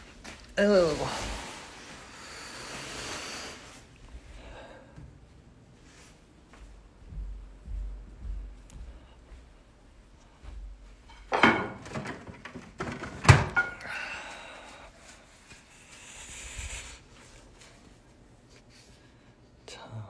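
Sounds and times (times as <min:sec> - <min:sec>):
faint hiss: 0:01.0 - 0:03.9.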